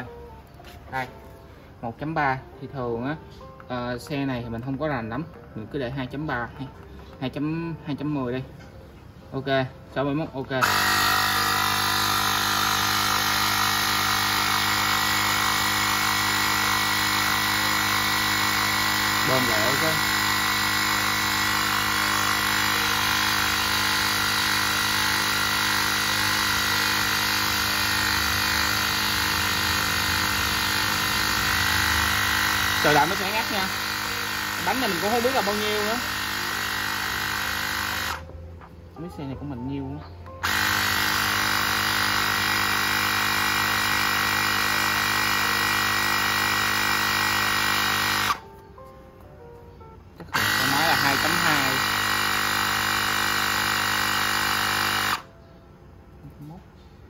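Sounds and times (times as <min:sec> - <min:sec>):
electric air compressor running: 0:00.0 - 0:08.4, 0:09.3 - 0:48.9, 0:50.2 - 0:55.5.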